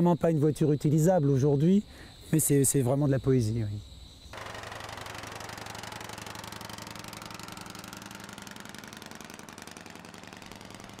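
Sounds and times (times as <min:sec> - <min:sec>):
propeller car engine running: 0:04.4 - 0:11.0.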